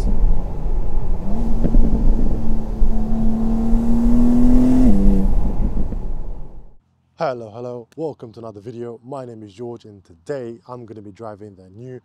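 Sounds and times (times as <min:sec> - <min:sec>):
car engine accelerating hard: 0:00.0 - 0:06.8.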